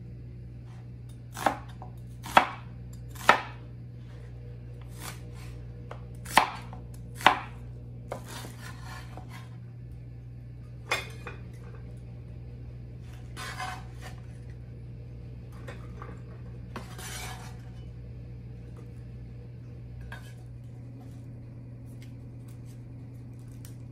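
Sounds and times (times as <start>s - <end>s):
cleaver chopping on cutting board: 1.3s - 3.6s, 4.9s - 9.5s
cleaver scraping cutting board: 4.8s - 5.6s, 8.1s - 9.6s, 13.0s - 14.4s, 16.7s - 17.8s.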